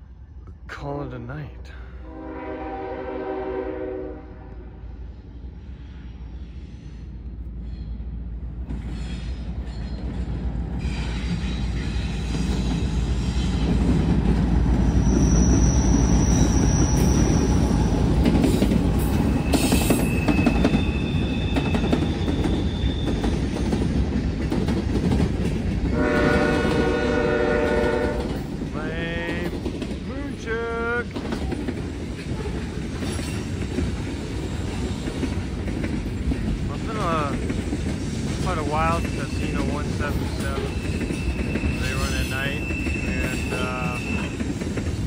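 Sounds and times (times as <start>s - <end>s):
freight train rumble: 0.0s - 45.0s
train horn: 2.0s - 4.9s, 25.9s - 28.4s
train wheel squeals: 5.3s - 13.9s, 14.7s - 23.8s, 32.4s - 33.8s, 38.4s - 45.0s.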